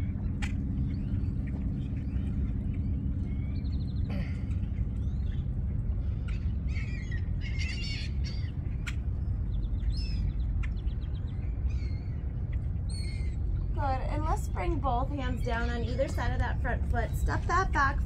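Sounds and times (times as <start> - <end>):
birds chirping and calling: 0.0 - 14.0
steady low rumble: 0.0 - 18.0.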